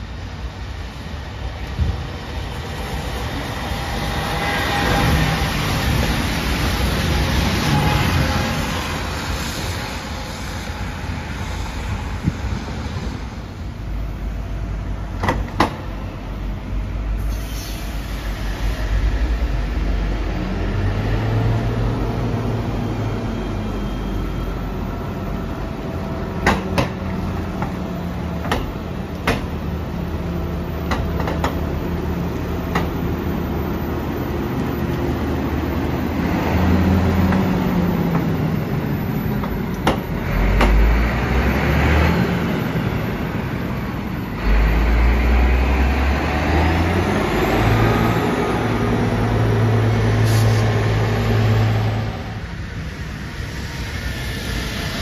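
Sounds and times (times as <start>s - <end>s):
tram running rumble: 0.0s - 55.0s
tram motor hum: 18.2s - 55.0s.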